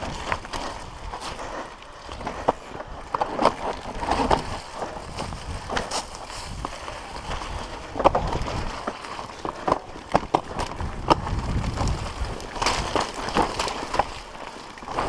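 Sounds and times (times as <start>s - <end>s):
bike clicks and rattles: 0.0s - 15.0s
tyres rumbling on dirt: 0.0s - 15.0s
wind on microphone: 3.8s - 8.9s, 10.5s - 13.1s.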